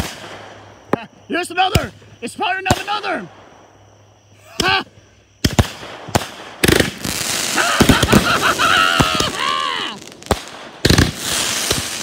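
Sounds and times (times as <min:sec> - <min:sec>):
fireworks crackling: 0:00.0 - 0:03.8, 0:05.4 - 0:12.0
fireworks whistling: 0:00.0 - 0:12.0
fireworks bang: 0:05.4 - 0:12.0.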